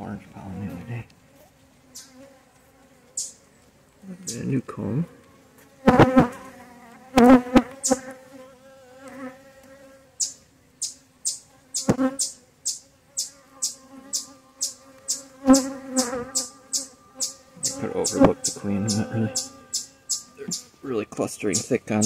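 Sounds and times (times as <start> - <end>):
bees buzzing in low hum: 0.1 - 22.0
bee flying close to microphone: 4.9 - 10.3, 11.5 - 12.4, 13.1 - 22.0.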